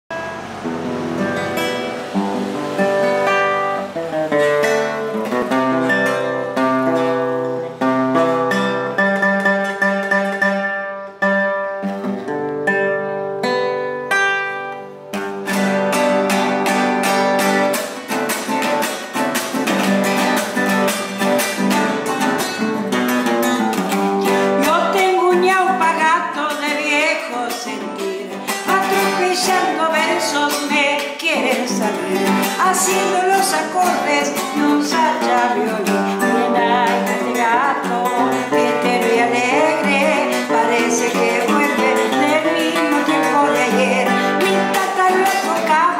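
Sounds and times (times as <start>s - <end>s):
acoustic guitar playing: 0.0s - 45.9s
woman singing: 24.2s - 45.9s.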